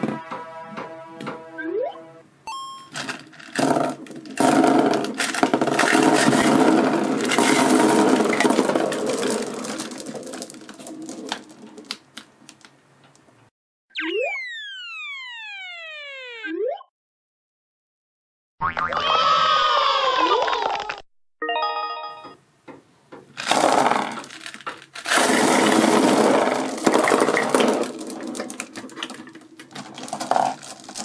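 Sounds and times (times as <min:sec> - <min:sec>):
candies clattering on table: 0:02.9 - 0:12.8, 0:23.4 - 0:31.0
falling slide whistle: 0:14.0 - 0:16.6
cartoon boing: 0:14.0 - 0:16.9, 0:18.6 - 0:19.3.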